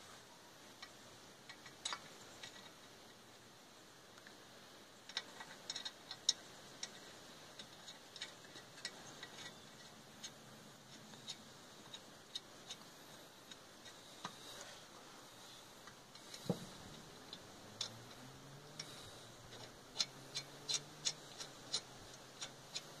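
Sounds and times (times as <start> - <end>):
metallic ticking of lug nuts: 15.8 - 23.0.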